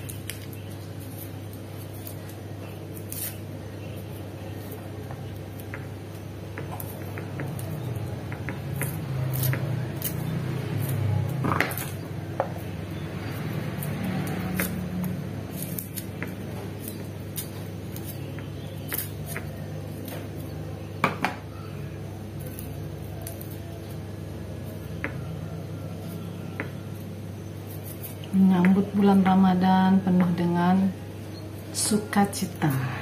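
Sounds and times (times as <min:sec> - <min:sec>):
knife scraping shallot skins: 0:00.0 - 0:05.7, 0:06.8 - 0:12.0, 0:12.6 - 0:20.9, 0:22.3 - 0:24.0, 0:24.6 - 0:28.4.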